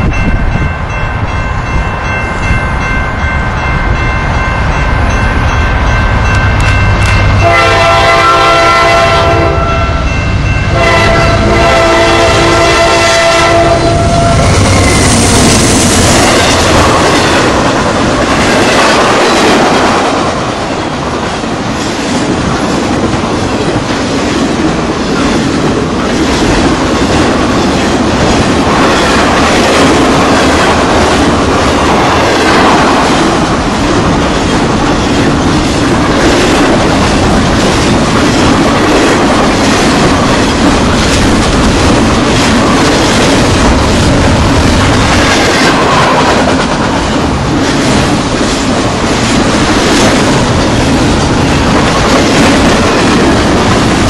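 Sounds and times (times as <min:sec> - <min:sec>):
locomotive engine rumble: 0:04.4 - 0:18.2
locomotive air horn blasts: 0:07.4 - 0:15.0
train wheels clattering over rails: 0:10.7 - 0:54.0.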